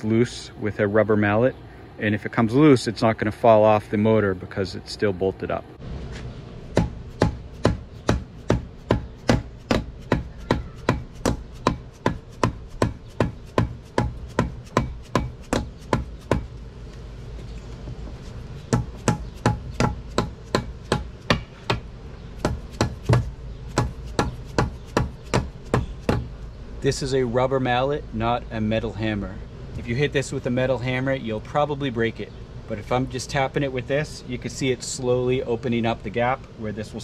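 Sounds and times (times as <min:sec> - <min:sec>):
rubber mallet tapping on metal: 0:18.7 - 0:26.3.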